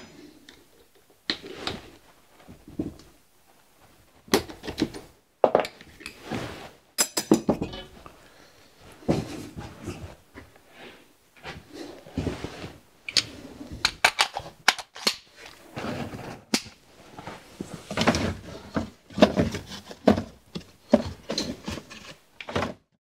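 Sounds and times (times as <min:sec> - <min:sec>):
tools clattering on wooden bench: 0:07.0 - 0:08.1.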